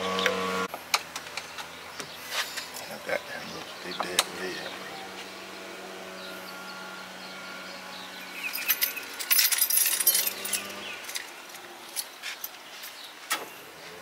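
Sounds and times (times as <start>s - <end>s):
steady low hum: 0.3s - 12.2s
keys jangling: 8.4s - 13.0s.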